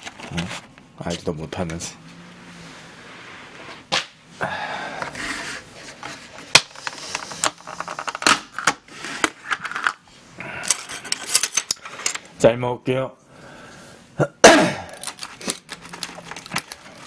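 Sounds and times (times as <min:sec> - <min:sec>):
plastic crinkling: 0:15.0 - 0:17.0.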